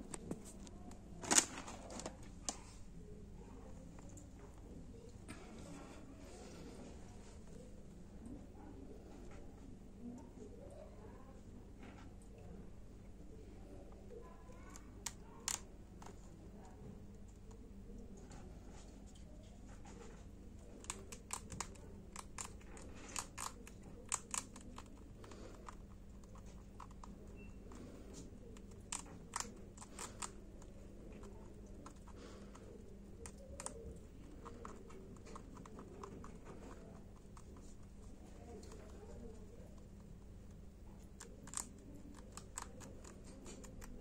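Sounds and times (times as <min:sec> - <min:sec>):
rabbit crunching dry treats: 0:00.0 - 0:02.8, 0:14.5 - 0:16.3, 0:18.3 - 0:44.0.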